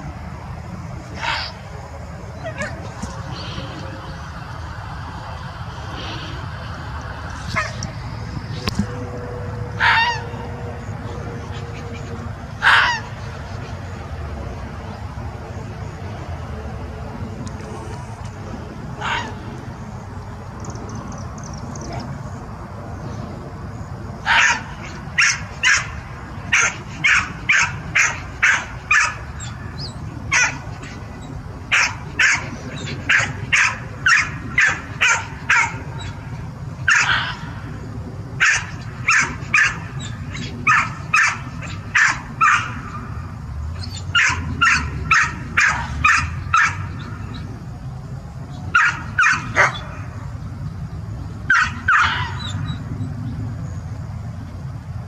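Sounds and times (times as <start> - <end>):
animal barking: 1.1 - 1.7, 2.4 - 3.9, 7.5 - 7.8, 9.7 - 13.7, 19.0 - 19.4, 24.2 - 37.6, 38.4 - 42.9, 43.8 - 47.1, 48.7 - 50.0, 51.5 - 52.8.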